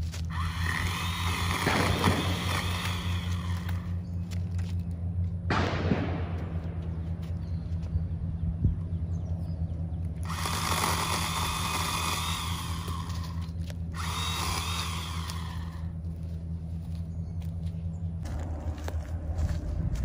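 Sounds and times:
electric pole saw cutting: 0:00.0 - 0:04.0, 0:10.2 - 0:16.1
steady low hum: 0:00.0 - 0:20.0.

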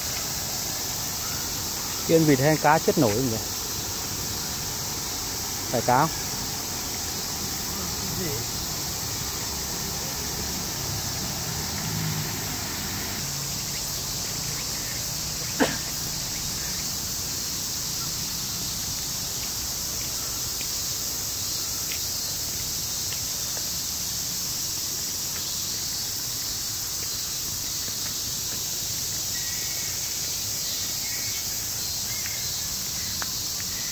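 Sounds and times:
insects chirping: 0:00.0 - 0:33.9.

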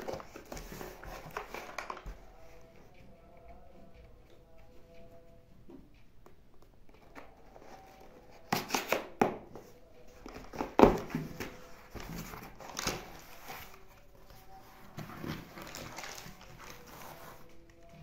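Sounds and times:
plastic packaging crinkling: 0:15.2 - 0:17.0.

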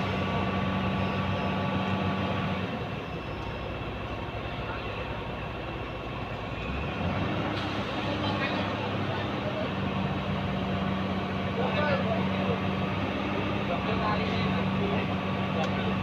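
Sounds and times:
forklift engine running: 0:00.0 - 0:16.0.

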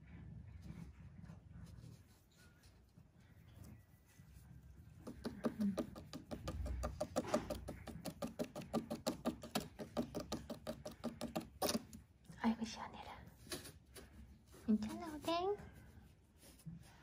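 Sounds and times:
hand rubbing cat fur: 0:13.3 - 0:17.0.

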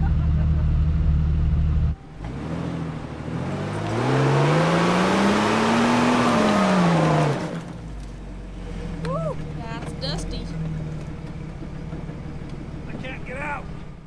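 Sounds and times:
vehicle engine revving: 0:00.0 - 0:14.0.

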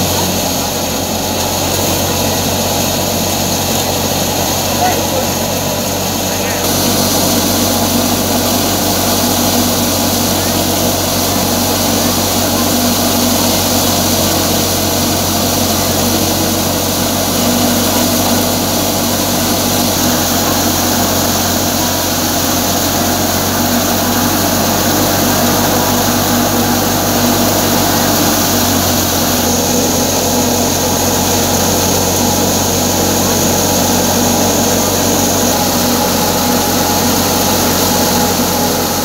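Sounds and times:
threshing machine drone: 0:00.0 - 0:39.0.

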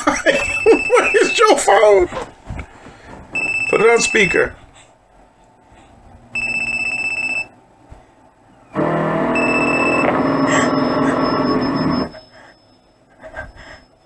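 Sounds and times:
electronic phone ring trilling: 0:08.8 - 0:12.8.

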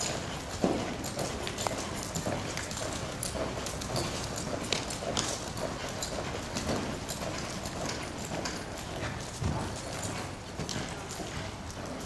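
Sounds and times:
horse hooves on sand: 0:00.0 - 0:12.0.

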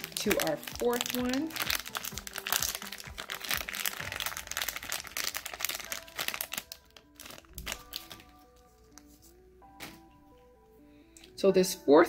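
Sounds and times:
foil bag crinkling: 0:00.0 - 0:09.1.

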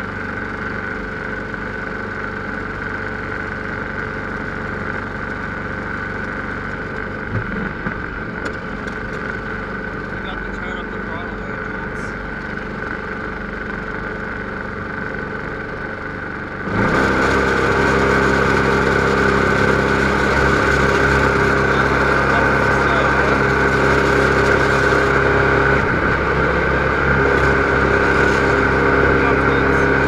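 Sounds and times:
snowblower engine running: 0:00.0 - 0:30.0
rough rushing noise: 0:16.7 - 0:30.0.

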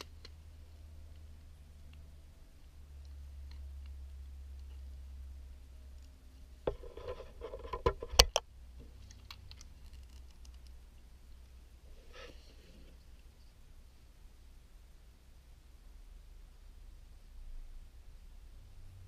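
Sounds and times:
soft rustle: 0:08.8 - 0:13.7.

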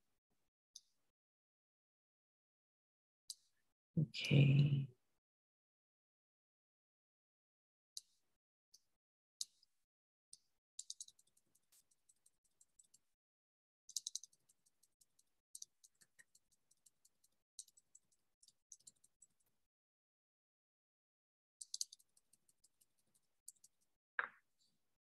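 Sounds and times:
computer mouse clicks: 0:00.8 - 0:01.0, 0:03.3 - 0:03.6, 0:08.0 - 0:08.2, 0:08.8 - 0:13.1, 0:13.9 - 0:19.5, 0:21.6 - 0:24.8.

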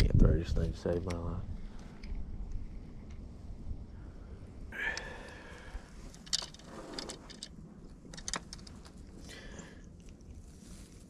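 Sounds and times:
fishing tackle clicking and jingling: 0:06.1 - 0:08.7
sharp clicks: 0:06.1 - 0:09.2.

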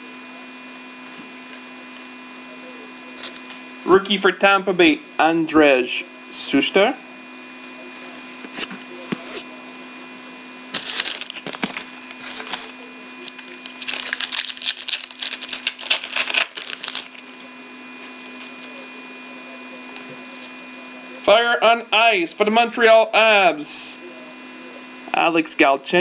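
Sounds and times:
faint steady hum: 0:00.0 - 0:26.0
foil pack tearing and crinkling: 0:03.1 - 0:03.6, 0:10.7 - 0:17.5
cards sliding and flipping: 0:08.0 - 0:09.5, 0:10.8 - 0:12.8.

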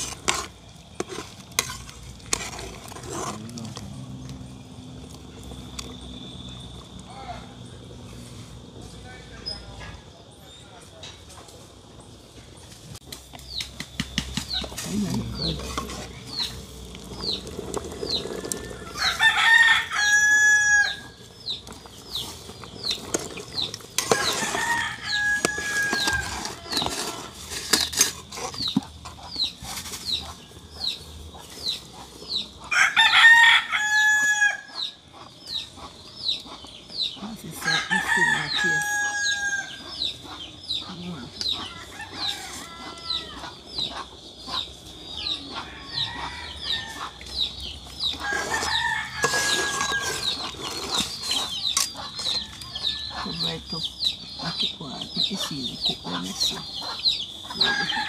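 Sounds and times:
rooster crowing: 0:18.1 - 0:21.2, 0:24.2 - 0:26.8, 0:32.7 - 0:34.7, 0:37.6 - 0:39.8, 0:41.6 - 0:43.6, 0:45.5 - 0:47.2, 0:48.2 - 0:50.4, 0:57.5 - 0:58.0.

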